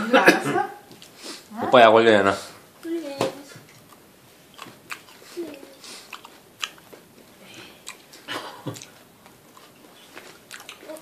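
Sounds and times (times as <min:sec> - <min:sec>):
toddler chewing: 0:03.5 - 0:11.0.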